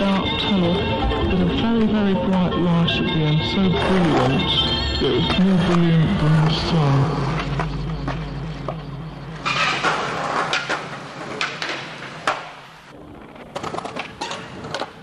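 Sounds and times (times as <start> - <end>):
skateboard clacking: 9.4 - 15.0
skateboard scraping along ledge: 9.4 - 15.0
skateboard wheels rolling: 9.4 - 15.0.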